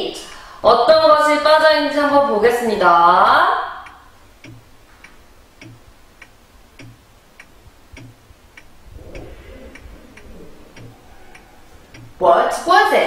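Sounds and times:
clock ticking: 3.6 - 13.0.

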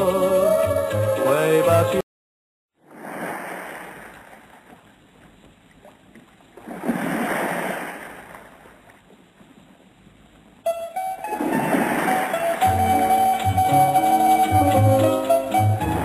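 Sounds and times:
sea waves breaking: 2.8 - 10.0, 10.7 - 16.0.

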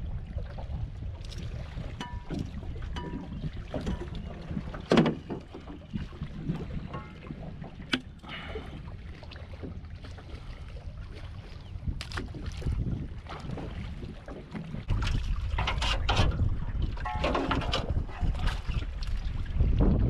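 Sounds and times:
wind rumble on microphone: 0.0 - 20.0
knocks and clicks of gear: 2.0 - 5.8.

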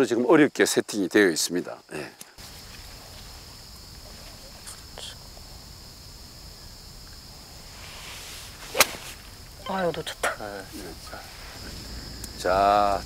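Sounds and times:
insects chirring: 0.0 - 13.0
low rumble of wind: 2.4 - 13.0.

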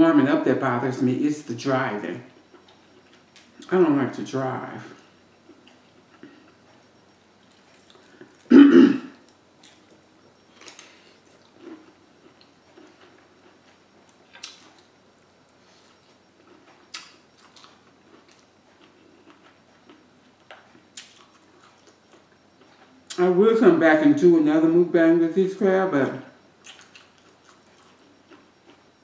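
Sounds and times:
woman clearing her throat: 8.5 - 9.2.

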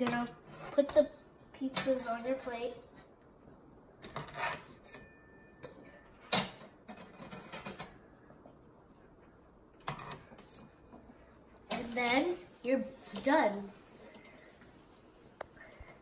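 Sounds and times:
metal spatula scraping wire rack: 4.1 - 5.1.

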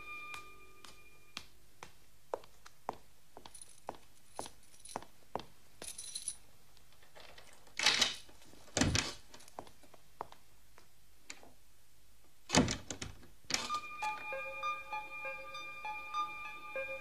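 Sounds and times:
metallic jingle: 5.8 - 6.4.

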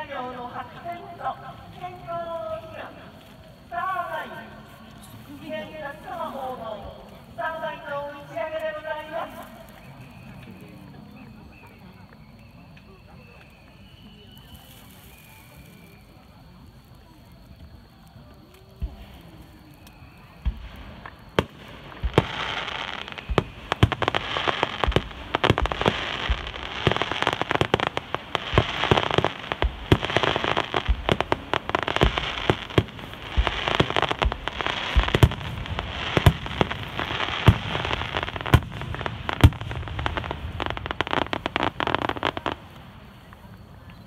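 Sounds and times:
crackling fireworks: 0.0 - 44.0.

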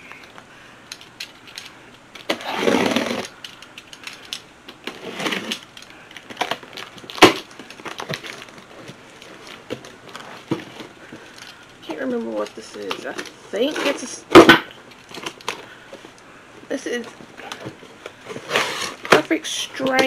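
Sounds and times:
packaging rustling scrapes: 2.2 - 11.7, 17.4 - 20.0.

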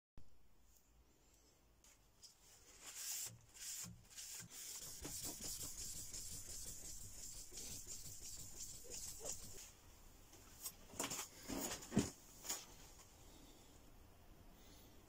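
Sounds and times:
sandpaper strokes on knife blade: 2.7 - 9.7.

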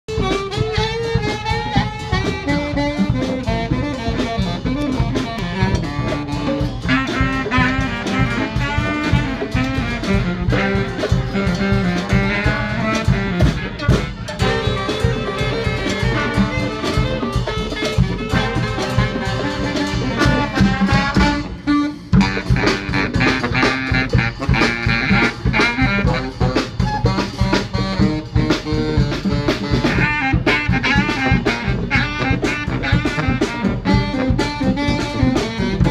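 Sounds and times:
street brass band playing: 0.0 - 35.9
busy drumming: 0.1 - 35.9
saxophone: 0.1 - 35.9.

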